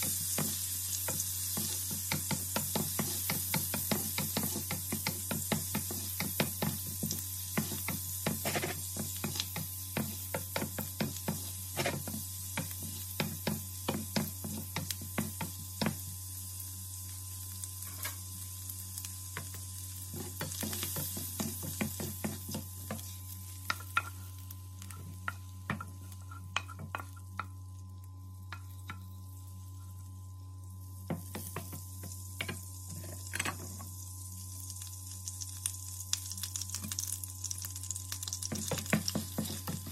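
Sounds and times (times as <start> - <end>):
shrimp sizzling in frying pan: 0.0 - 39.9
spatula scraping pan: 7.6 - 13.4.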